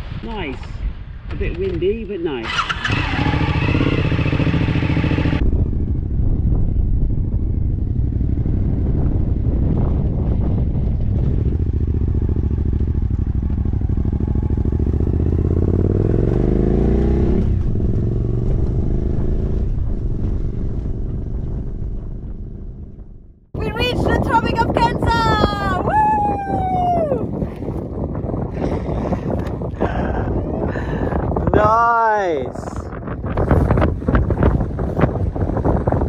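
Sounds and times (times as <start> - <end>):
wind rumbling on microphone: 0.0 - 36.0
motorcycle engine running: 2.4 - 25.8.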